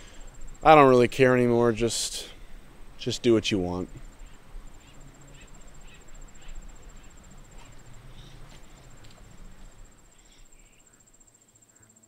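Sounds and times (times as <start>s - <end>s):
insect trilling high-pitched: 4.0s - 8.5s.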